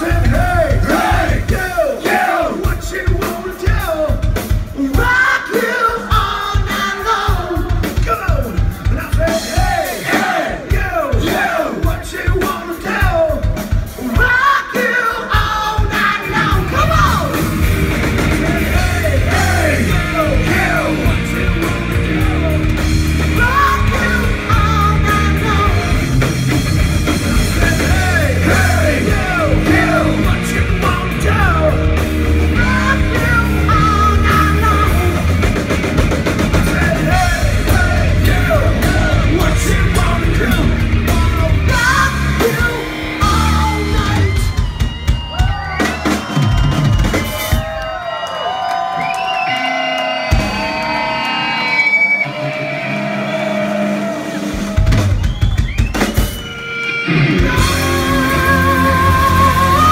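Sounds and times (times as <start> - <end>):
bass guitar: 0.0 - 1.9, 15.1 - 47.7, 52.3 - 59.9
man singing: 0.0 - 9.9, 10.5 - 17.4, 18.4 - 26.1, 27.5 - 35.3, 36.5 - 44.6, 57.2 - 59.9
drum kit: 0.0 - 48.1, 49.0 - 59.9
electric guitar: 15.9 - 47.2, 49.4 - 59.9.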